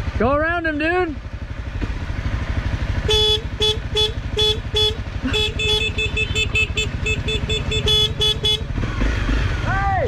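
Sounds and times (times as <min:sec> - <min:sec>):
motorcycle engine running: 0:00.0 - 0:10.0
horn beeping: 0:03.0 - 0:08.8.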